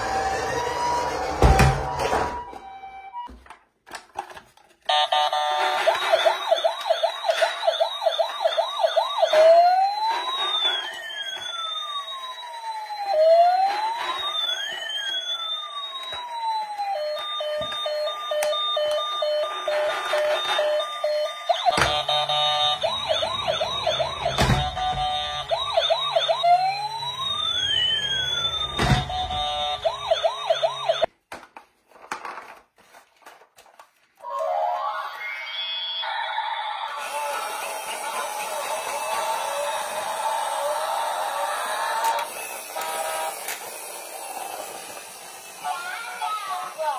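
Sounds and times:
toy ambulance siren: 0:00.0 - 0:03.5, 0:04.9 - 0:31.1, 0:34.2 - 0:46.9
plastic toys clicking and knocking: 0:03.4 - 0:08.6, 0:13.6 - 0:22.2, 0:31.0 - 0:34.0, 0:41.9 - 0:45.6.

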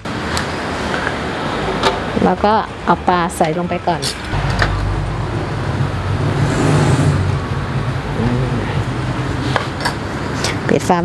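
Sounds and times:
car passing by: 0:04.2 - 0:09.8.

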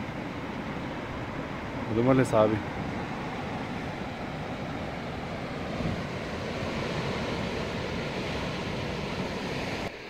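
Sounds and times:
wind buffeting microphone: 0:00.0 - 0:09.9
surf breaking against rocks: 0:04.7 - 0:09.9.

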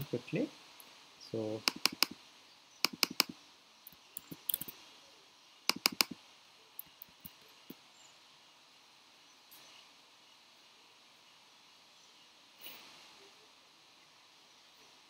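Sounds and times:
computer mouse clicks: 0:01.6 - 0:02.2, 0:02.8 - 0:04.8, 0:05.7 - 0:06.2
keyboard clicks: 0:01.6 - 0:02.2, 0:02.8 - 0:04.7, 0:05.7 - 0:06.2.

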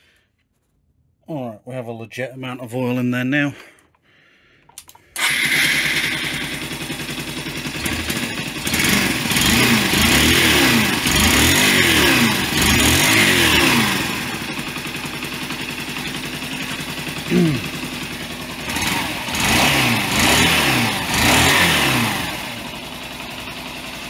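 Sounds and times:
motorcycle engine starting and revving: 0:04.8 - 0:24.0.

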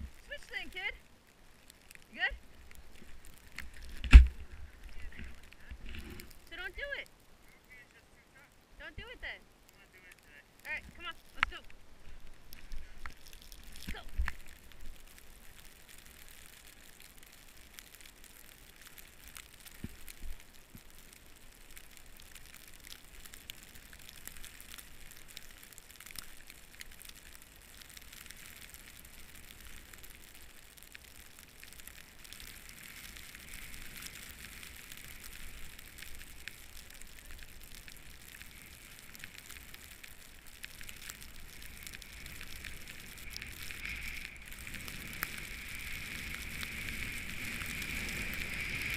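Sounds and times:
snow crackling on camera: 0:00.0 - 0:48.9
snowboard hissing through powder: 0:41.6 - 0:48.9.

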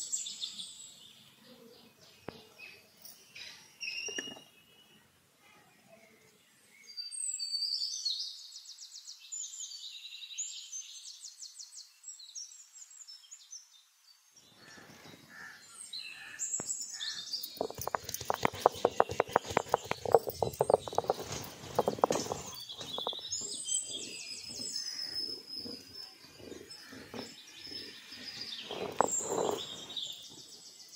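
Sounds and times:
small birds trilling and chirping: 0:00.0 - 0:05.2, 0:05.8 - 0:30.9
stone roller crunching spices: 0:17.5 - 0:30.0.

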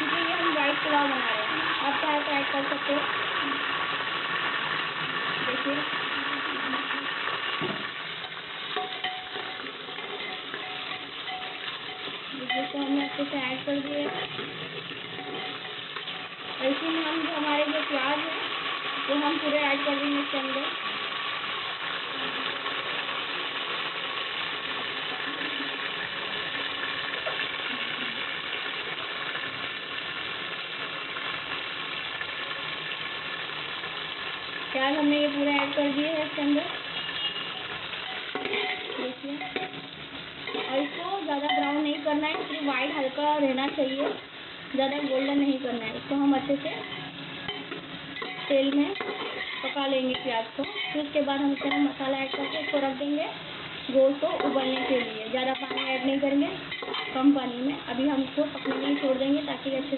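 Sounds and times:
spices sizzling in hot oil: 0:00.0 - 0:59.9
spoon clinking on pot: 0:08.2 - 0:13.2, 0:37.6 - 0:39.8, 0:54.4 - 0:56.1, 0:56.7 - 0:57.2
spoon stirring: 0:08.2 - 0:16.3, 0:37.1 - 0:39.8, 0:40.4 - 0:42.9, 0:46.8 - 0:53.0, 0:54.3 - 0:57.3, 0:58.2 - 0:59.4.

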